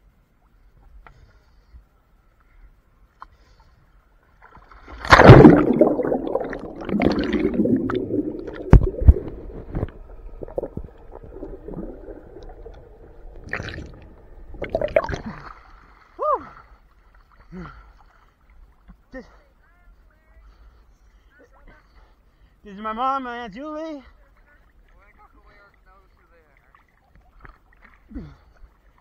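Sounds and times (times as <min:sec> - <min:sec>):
camera splashing into water: 0:04.8 - 0:10.0
underwater gurgling and bubbling: 0:05.0 - 0:15.5.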